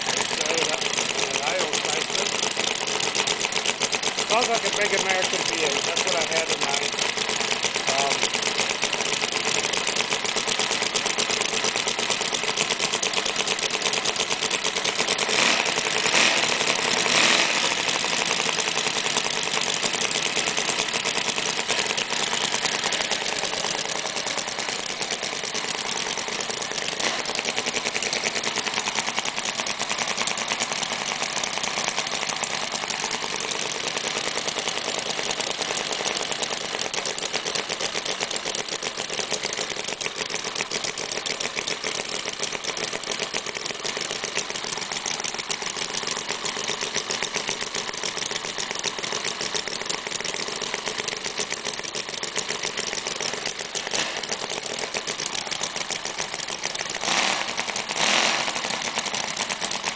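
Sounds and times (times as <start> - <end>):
model engine running: 0.0 - 59.9.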